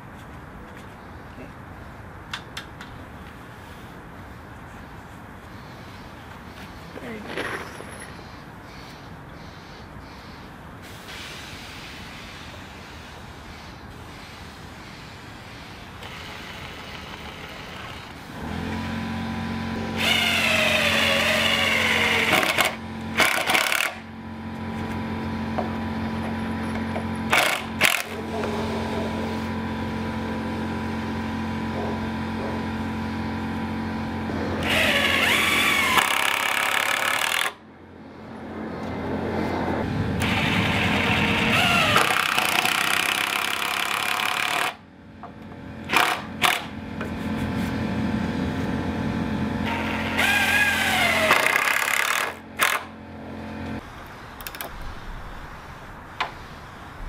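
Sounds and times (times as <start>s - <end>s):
power driver driving screw: 20.0s - 24.0s, 27.3s - 28.2s, 34.6s - 37.6s, 40.2s - 44.8s, 45.9s - 46.7s, 49.7s - 52.9s.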